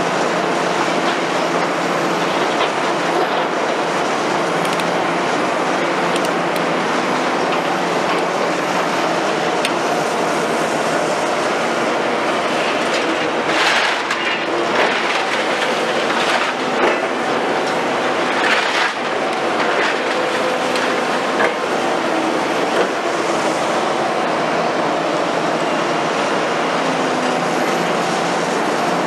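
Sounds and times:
diesel engine and hydraulics: 0:00.0 - 0:29.0.

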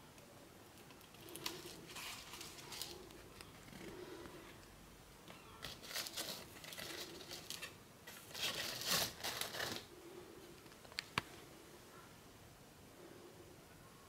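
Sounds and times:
card stock rustling: 0:05.6 - 0:09.9.

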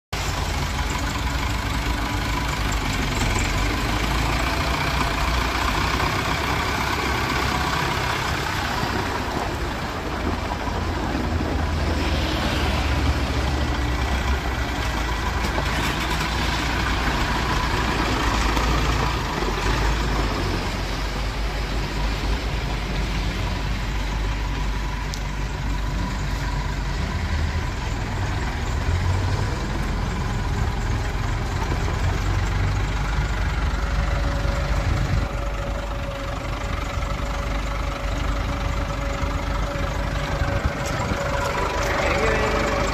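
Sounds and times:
tractor diesel engine running: 0:00.1 - 0:42.9.

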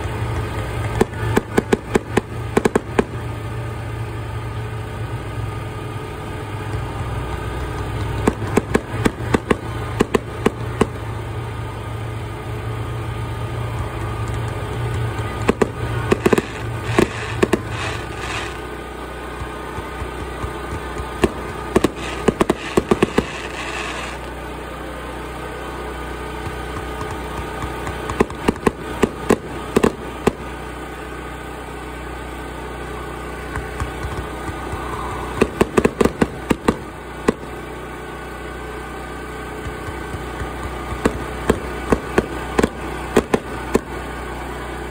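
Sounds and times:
fireworks crackling: 0:00.0 - 0:44.9
steady low hum: 0:00.0 - 0:44.9.

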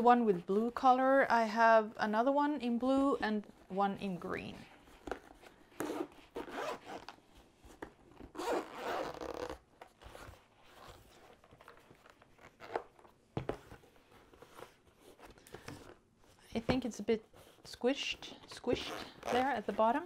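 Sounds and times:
zipper being drawn: 0:05.8 - 0:07.1, 0:08.3 - 0:11.0, 0:18.8 - 0:19.8.

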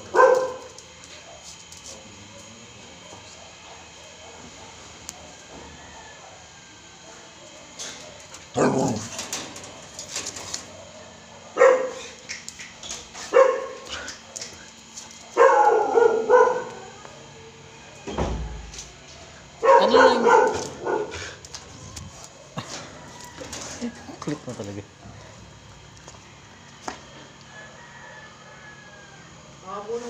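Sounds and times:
husky barking: 0:00.0 - 0:01.5, 0:02.2 - 0:06.4, 0:07.0 - 0:12.2, 0:13.2 - 0:14.1, 0:15.2 - 0:17.3, 0:19.6 - 0:21.5.

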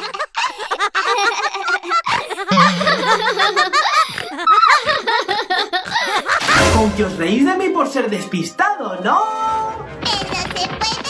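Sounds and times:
cartoon voices laughing: 0:00.0 - 0:06.6
background music: 0:06.4 - 0:11.0.

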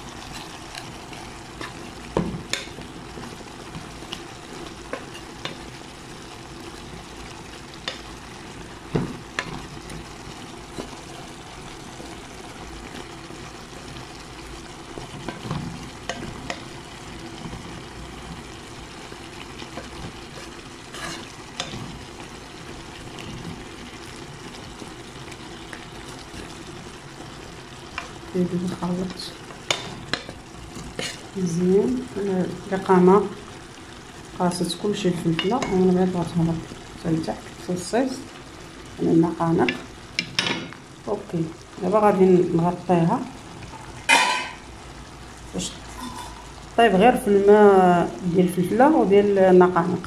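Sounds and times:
peppers sizzling in a frying pan: 0:00.0 - 0:50.0
spatula scraping a pan: 0:19.7 - 0:22.1, 0:29.6 - 0:31.4.

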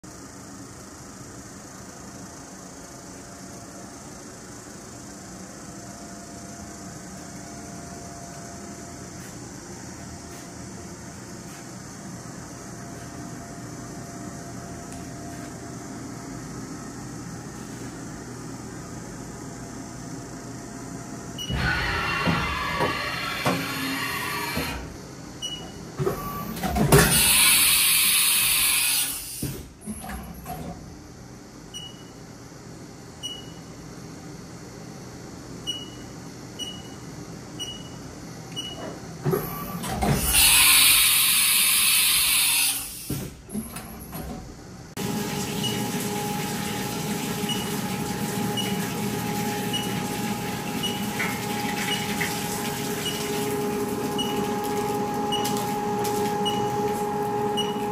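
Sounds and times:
quiet machine sounds: 0:00.0 - 0:57.9
coolant spraying with hum: 0:26.4 - 0:29.8, 0:39.9 - 0:43.5, 0:44.9 - 0:57.9
machine hissing bursts: 0:27.0 - 0:29.7, 0:40.0 - 0:43.4.

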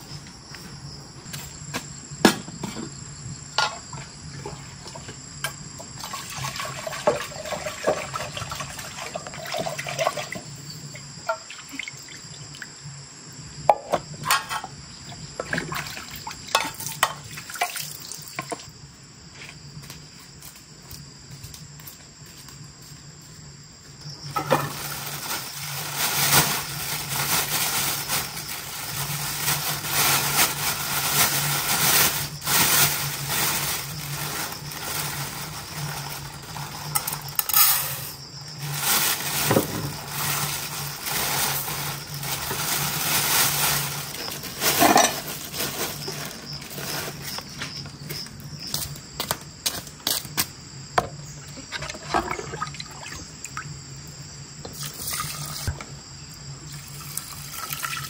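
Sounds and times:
pots and dishes clinking: 0:13.7 - 0:14.8, 0:44.6 - 0:45.4
steady hiss: 0:19.8 - 0:47.4.

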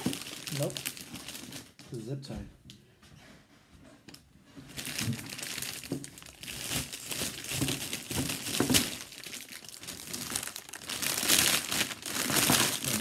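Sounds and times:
cellophane crinkling: 0:00.0 - 0:01.8, 0:04.7 - 0:13.0.

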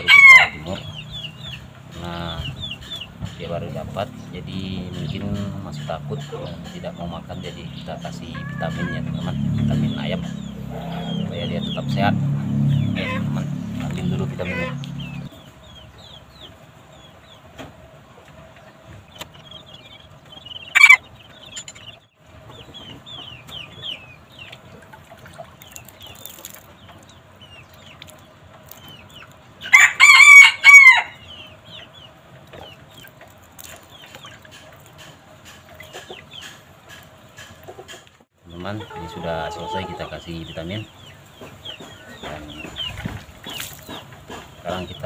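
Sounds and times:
rooster crowing: 0:00.0 - 0:00.8, 0:29.7 - 0:31.2
water dripping and trickling: 0:24.3 - 0:29.6, 0:32.3 - 0:36.0, 0:42.6 - 0:44.6.

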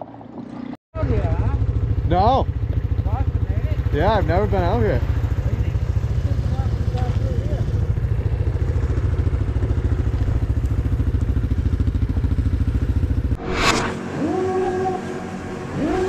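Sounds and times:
loud engine running: 0:01.0 - 0:16.0
rising whine: 0:13.2 - 0:16.0.

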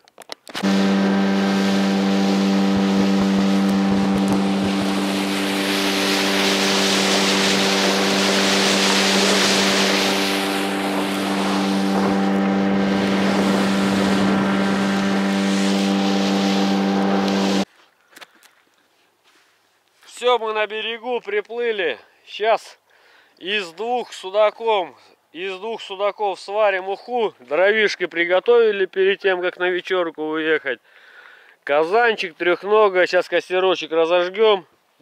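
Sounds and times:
outboard motor running: 0:00.6 - 0:17.7
rushing wind and water: 0:04.0 - 0:17.6.

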